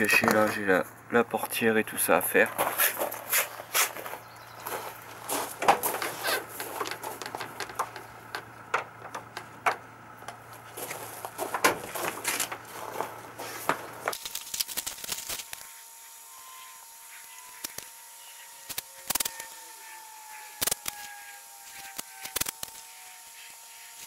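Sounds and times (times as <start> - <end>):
faint steady hum: 0.0 - 24.0
tape crackling and clicking: 5.0 - 15.8, 17.3 - 17.9, 18.7 - 20.0, 20.6 - 23.0.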